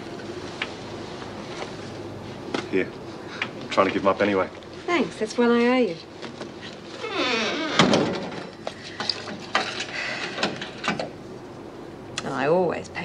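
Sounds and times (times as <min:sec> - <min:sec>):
door closing with heavy thunk: 0:07.5 - 0:08.5.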